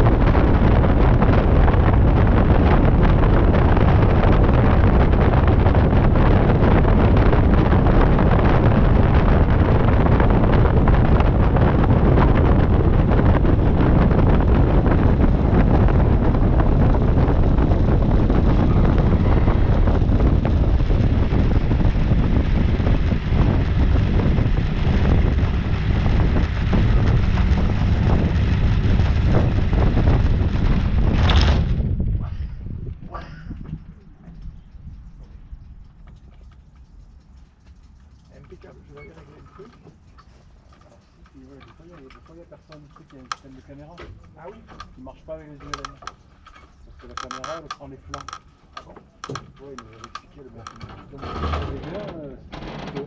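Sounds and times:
light aircraft engine and propeller: 0:00.0 - 0:31.8
wind rumble on microphone: 0:00.0 - 0:53.0.

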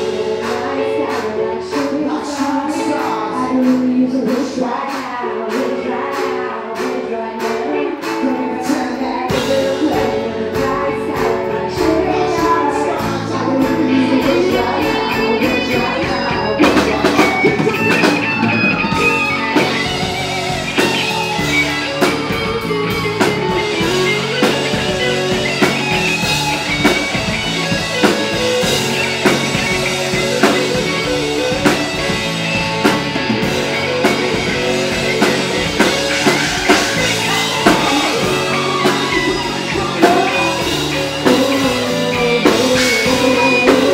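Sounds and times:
woman singing: 0:00.0 - 0:18.2, 0:34.0 - 0:43.9
drums: 0:00.0 - 0:43.9
electric guitar: 0:00.0 - 0:43.9.

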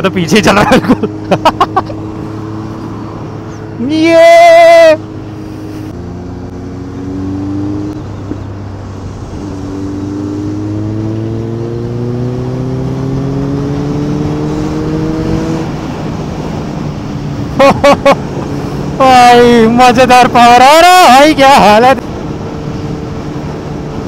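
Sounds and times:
motorcycle engine accelerating: 0:00.0 - 0:03.9, 0:05.0 - 0:19.6
person shouting: 0:03.8 - 0:05.0
wind noise: 0:06.7 - 0:19.6.

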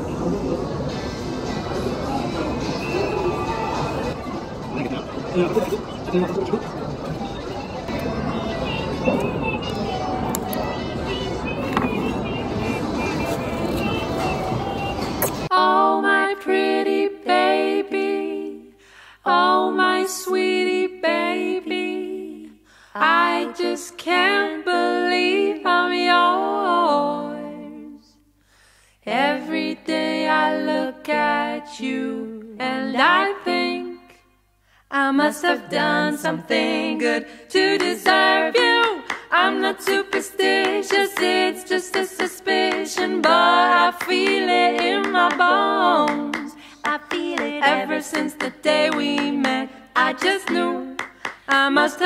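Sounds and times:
a cappella group singing: 0:11.4 - 0:28.3, 0:29.0 - 0:34.3, 0:34.9 - 0:52.0.

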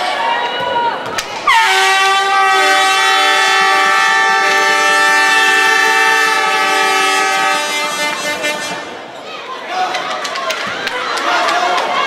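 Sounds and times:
air horns blasting: 0:01.4 - 0:09.1.

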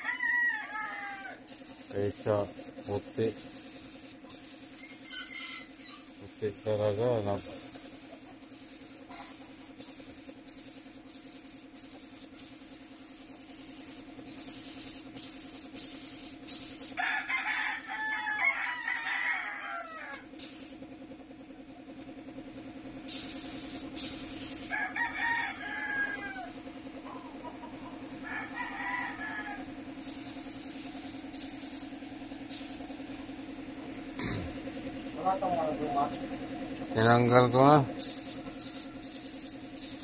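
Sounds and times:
rooster crowing: 0:00.0 - 0:01.6, 0:04.8 - 0:06.2, 0:16.9 - 0:20.3, 0:24.5 - 0:26.6, 0:27.2 - 0:29.8
steady low hum: 0:00.0 - 0:17.3, 0:19.8 - 0:40.0
spray gun hissing: 0:01.3 - 0:05.0, 0:05.6 - 0:17.0, 0:20.4 - 0:20.8, 0:23.1 - 0:24.7, 0:30.0 - 0:32.9, 0:38.0 - 0:40.0.

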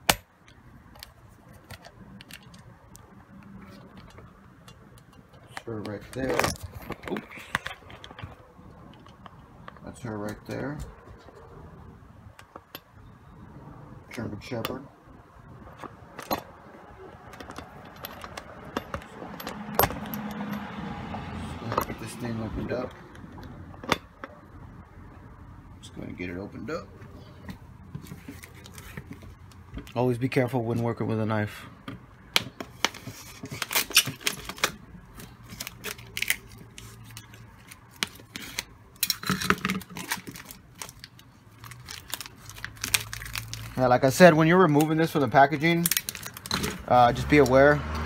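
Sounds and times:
plastic wrap crinkling: 0:39.8 - 0:44.2, 0:45.8 - 0:46.6.

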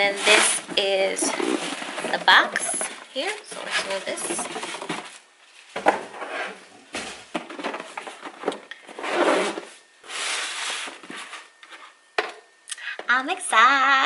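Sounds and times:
cardboard rubbing and scraping: 0:00.0 - 0:02.5, 0:03.2 - 0:05.2, 0:06.0 - 0:06.6, 0:08.9 - 0:11.9.

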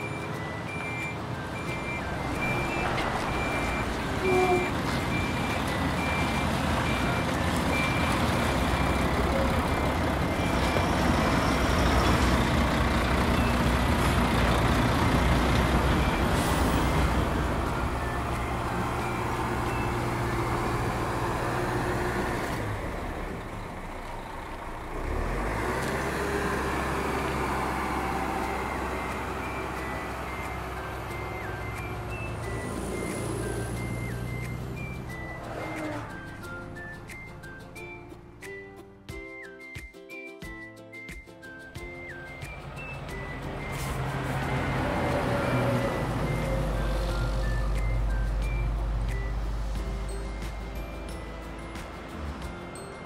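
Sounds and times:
reversing beeper: 0:00.0 - 0:09.4
truck engine running: 0:00.0 - 0:38.0, 0:42.0 - 0:53.0.

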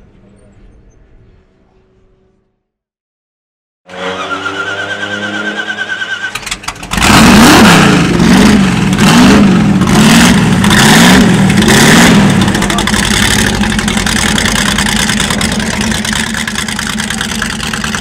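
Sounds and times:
car engine starter whine: 0:03.9 - 0:07.0
engine revving: 0:03.9 - 0:18.0.

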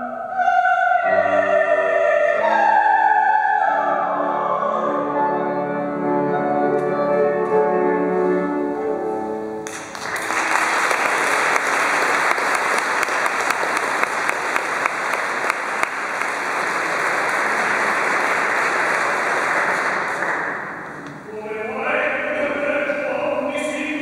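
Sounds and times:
audience applause: 0:09.6 - 0:21.0.

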